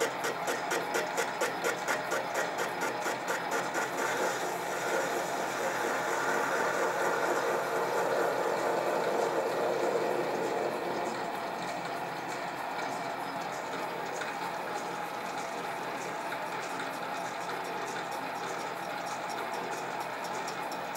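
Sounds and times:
lathe chuck ticking: 0:00.0 - 0:20.9
lathe motor and cutting whirr: 0:00.0 - 0:20.9.

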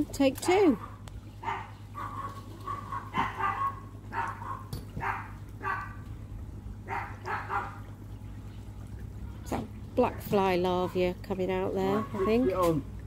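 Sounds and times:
dog barking: 0:00.8 - 0:06.0, 0:06.9 - 0:07.8, 0:11.9 - 0:12.5.

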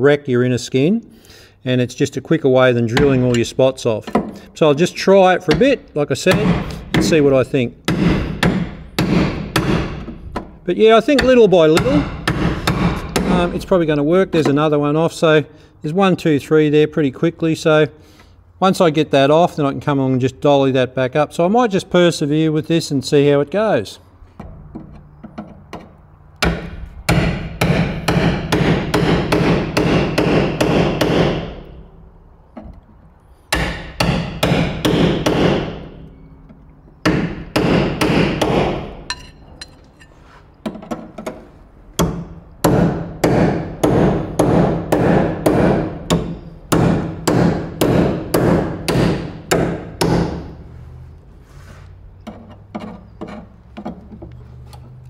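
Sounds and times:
hammer striking chisel on steel: 0:05.4 - 0:14.6, 0:24.4 - 0:31.8, 0:33.5 - 0:41.4, 0:42.0 - 0:50.5
steel panel ringing: 0:24.4 - 0:27.2.

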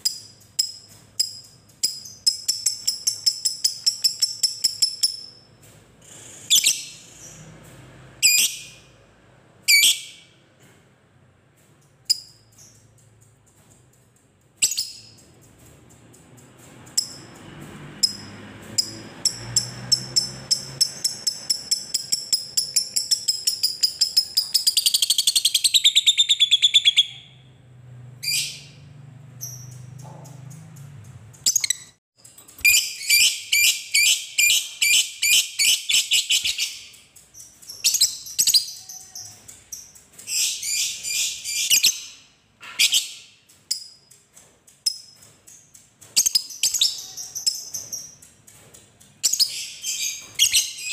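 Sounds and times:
bird chirping and chattering: 0:00.0 - 0:05.4, 0:06.0 - 0:07.5, 0:14.2 - 0:17.4, 0:18.0 - 0:27.5, 0:29.4 - 0:44.1, 0:44.7 - 0:50.9.

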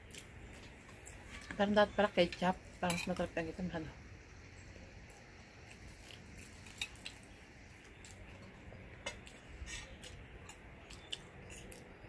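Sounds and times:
chewing: 0:05.0 - 0:12.0.

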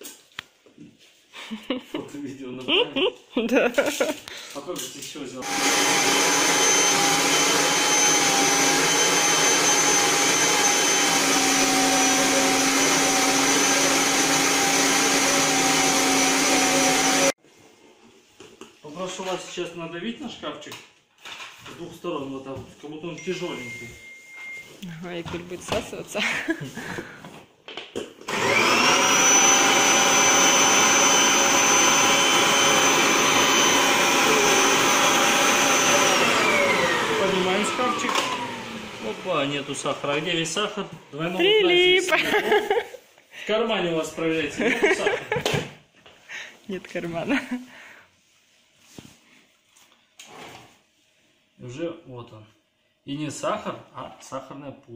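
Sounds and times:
vacuum cleaner running: 0:05.4 - 0:17.4, 0:28.2 - 0:42.7
vacuum nozzle sucking on cardboard: 0:28.3 - 0:39.6.

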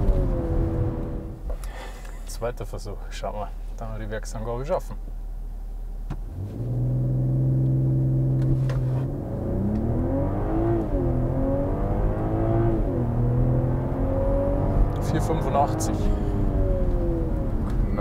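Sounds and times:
car engine accelerating: 0:00.0 - 0:02.3, 0:06.0 - 0:18.0.

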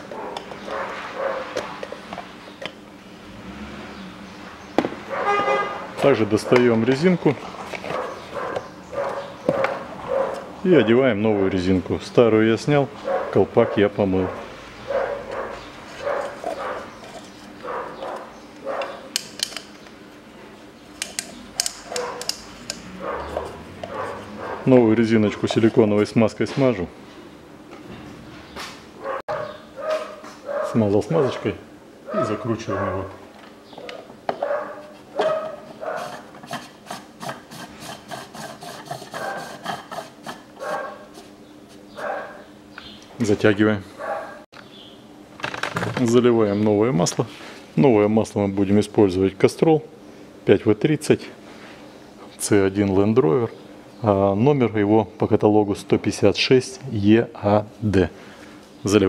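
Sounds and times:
dog barking: 0:00.1 - 0:01.6, 0:05.1 - 0:05.7, 0:07.9 - 0:11.0, 0:13.0 - 0:16.9, 0:17.6 - 0:19.0, 0:21.9 - 0:22.3, 0:23.0 - 0:24.7, 0:29.0 - 0:31.4, 0:32.1 - 0:33.2, 0:33.8 - 0:36.2, 0:39.2 - 0:39.5, 0:40.6 - 0:41.0, 0:42.0 - 0:42.4, 0:44.0 - 0:44.4
threads scraping: 0:15.1 - 0:19.0, 0:20.9 - 0:26.7, 0:34.7 - 0:42.2.

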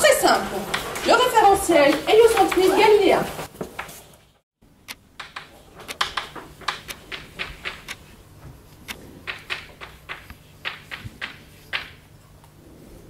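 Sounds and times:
sharp clicks and taps: 0:04.8 - 0:08.1, 0:08.7 - 0:12.0.

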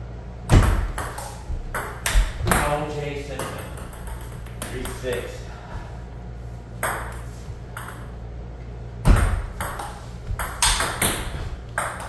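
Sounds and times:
ball bouncing on table: 0:00.5 - 0:02.7, 0:03.4 - 0:05.2, 0:06.8 - 0:08.1, 0:09.0 - 0:12.0
ping pong ball clicking paddles: 0:00.6 - 0:05.4, 0:06.8 - 0:08.1, 0:09.1 - 0:12.0.

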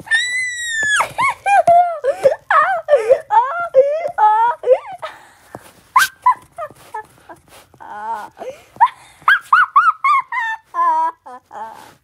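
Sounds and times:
high-pitched voice whimpering: 0:06.0 - 0:12.0.

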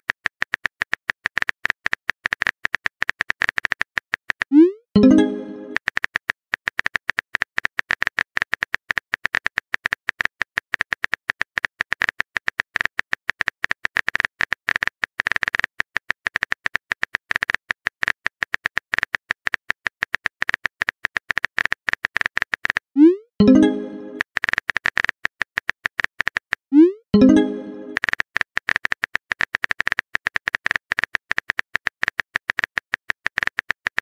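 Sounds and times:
phone keyboard typing clicks: 0:27.2 - 0:34.0.

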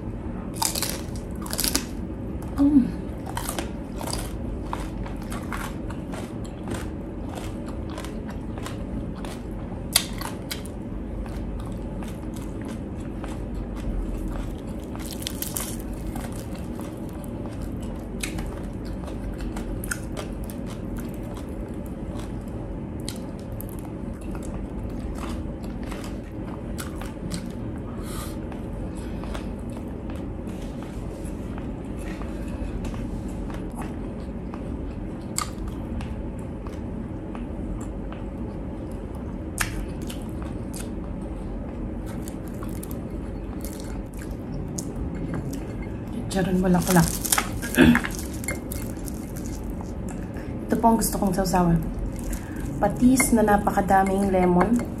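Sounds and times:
crunchy chewing of fried skin: 0:00.5 - 0:53.9.

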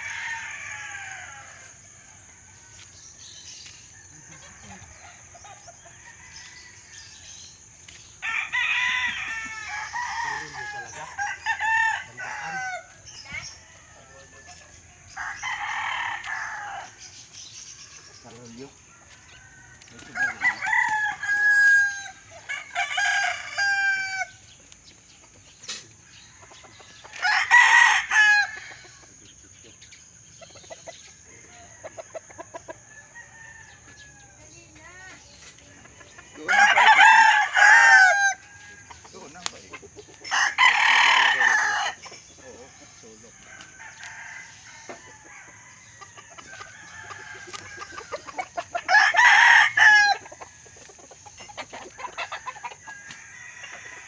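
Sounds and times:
roosters crowing: 0:00.0 - 0:54.0
rooster clucks: 0:43.8 - 0:54.0.

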